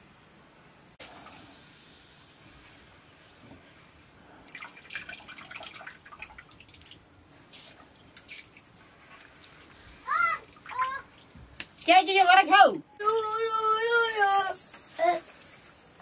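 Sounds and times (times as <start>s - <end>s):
water splashing in metal pot: 4.4s - 7.1s.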